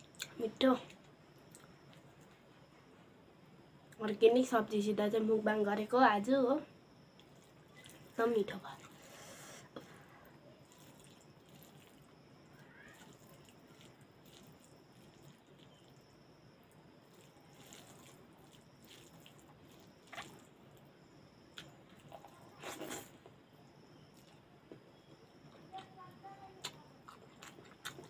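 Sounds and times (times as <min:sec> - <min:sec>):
squishing of eating by hand: 0:00.0 - 0:03.2, 0:06.8 - 0:28.0
chewing: 0:07.2 - 0:10.0, 0:10.6 - 0:12.1, 0:13.0 - 0:16.0, 0:17.0 - 0:20.9, 0:21.5 - 0:23.4, 0:24.1 - 0:26.0, 0:26.6 - 0:28.0.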